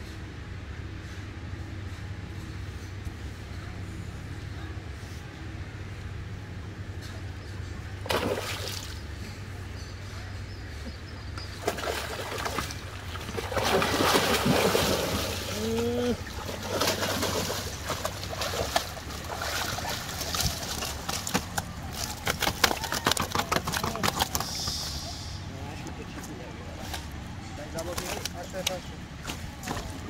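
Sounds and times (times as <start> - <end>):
fish splashing at water surface: 8.0 - 9.1, 11.6 - 25.3
fish flopping on boat deck: 11.5 - 25.2.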